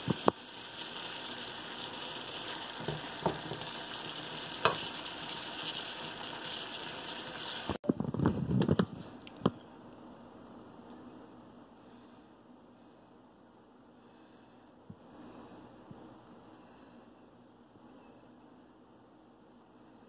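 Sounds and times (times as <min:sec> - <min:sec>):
food sizzling in a metal pan: 0:00.0 - 0:07.8.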